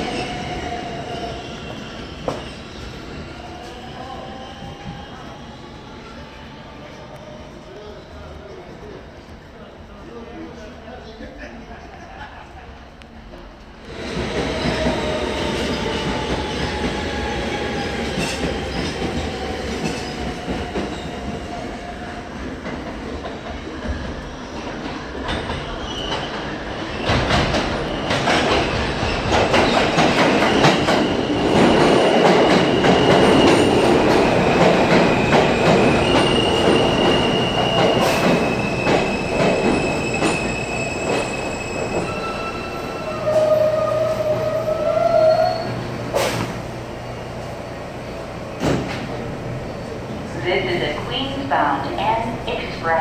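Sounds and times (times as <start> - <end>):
subway train wheels rumbling: 0.0 - 53.0
train wheels squealing: 25.3 - 46.4, 49.6 - 50.2.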